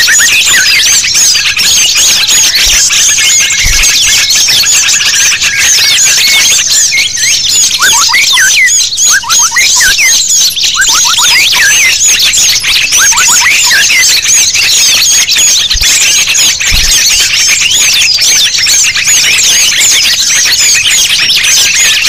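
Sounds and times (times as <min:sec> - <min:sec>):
songbirds twittering: 0:00.0 - 0:22.0.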